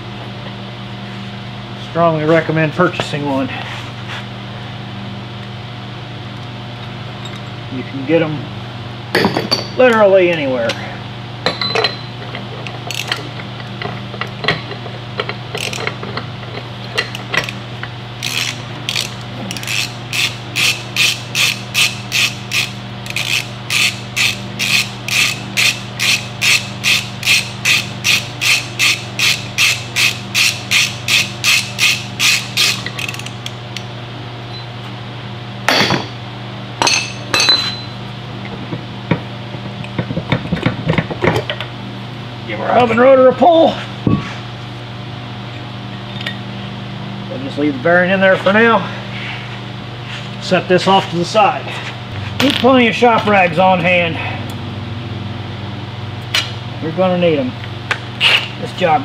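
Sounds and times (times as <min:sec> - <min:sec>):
hand ratchet clicking: 0:15.5 - 0:16.0, 0:18.2 - 0:33.6.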